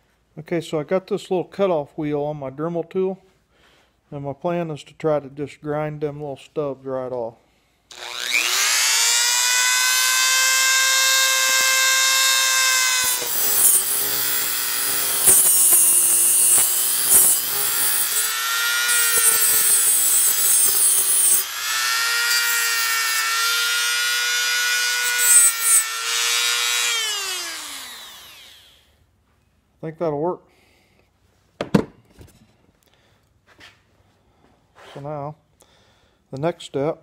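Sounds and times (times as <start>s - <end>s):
rotary tool grinding metal: 7.9s - 28.8s.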